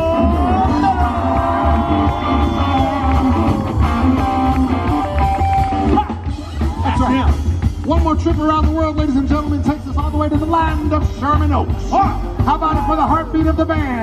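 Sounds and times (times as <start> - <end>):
electric guitar solo: 0.0 - 7.2
bass and drum groove: 0.0 - 14.0.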